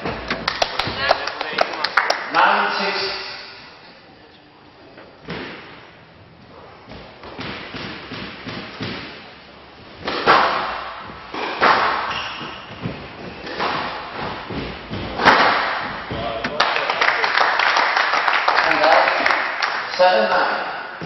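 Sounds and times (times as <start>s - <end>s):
squash ball hit by rackets: 5.2s - 5.9s, 6.8s - 16.6s
ball smacking off court walls: 10.0s - 16.7s.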